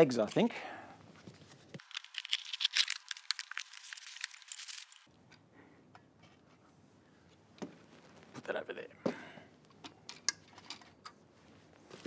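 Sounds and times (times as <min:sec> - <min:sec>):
cardboard tearing and crinkling: 0:01.8 - 0:05.1.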